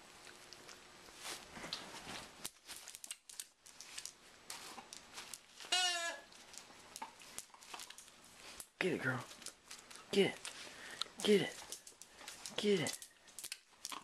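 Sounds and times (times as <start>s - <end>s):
plush toy rustling: 0.9s - 9.9s
toy squeaker squealing: 5.7s - 6.3s
paws clicking on tile: 6.3s - 14.0s.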